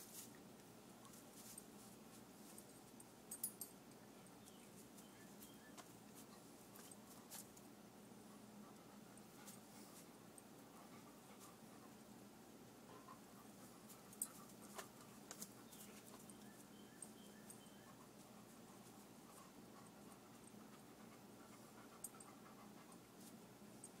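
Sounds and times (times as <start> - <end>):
dog panting and sniffing: 8.3 - 12.1, 12.8 - 16.4, 17.2 - 23.6.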